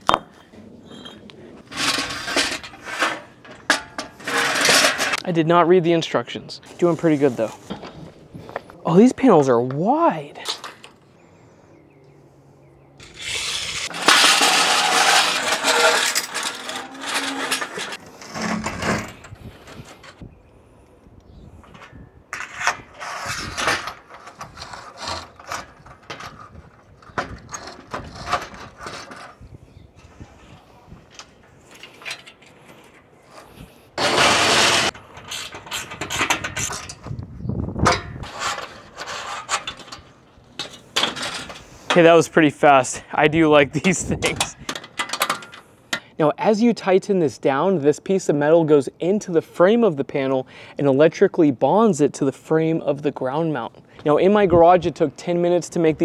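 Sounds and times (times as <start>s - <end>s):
metal parts rattling and scraping: 0.4s - 5.2s, 13.0s - 20.2s, 21.6s - 30.2s, 31.1s - 37.2s, 37.8s - 43.0s, 43.7s - 45.7s.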